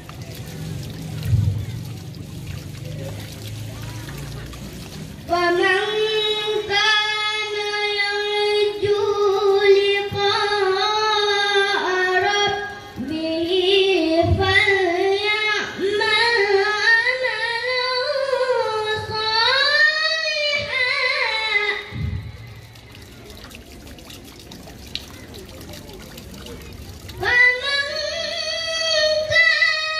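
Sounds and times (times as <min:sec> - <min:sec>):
boy reciting melodically: 0:05.3 - 0:22.3, 0:26.8 - 0:29.9.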